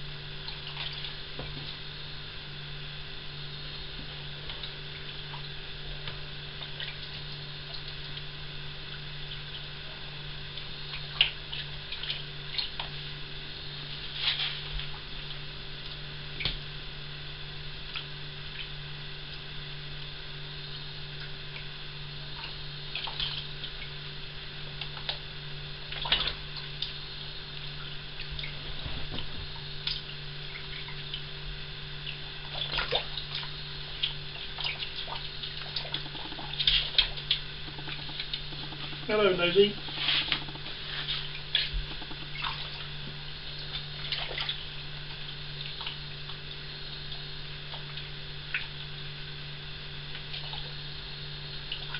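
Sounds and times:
steady low hum: 0.0s - 51.9s
water splashes and drips: 0.4s - 1.8s, 6.6s - 8.3s, 10.5s - 13.0s, 22.3s - 24.0s, 25.9s - 27.0s, 27.6s - 31.3s, 32.0s - 42.9s, 43.6s - 48.9s, 51.6s - 51.9s.

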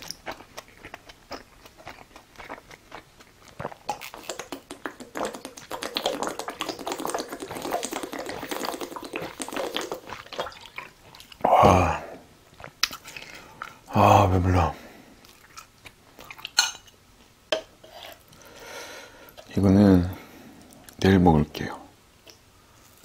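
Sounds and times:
chewing food crunches: 0.0s - 11.4s
wet mouth clicks: 3.5s - 11.5s.

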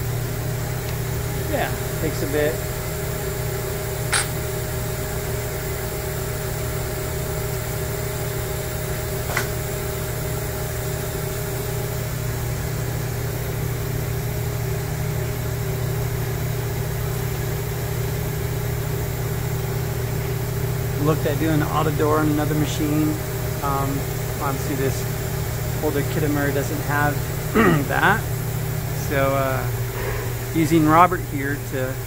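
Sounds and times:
machine shop hum: 0.0s - 32.0s.

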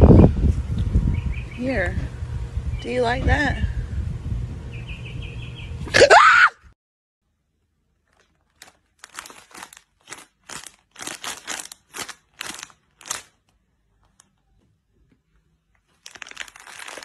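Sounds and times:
plastic bag crinkling: 7.9s - 14.4s, 15.7s - 17.0s.

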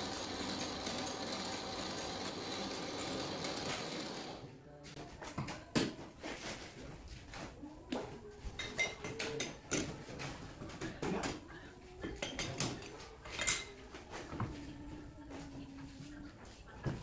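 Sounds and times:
steel tools clinking and clanking: 12.2s - 13.8s.

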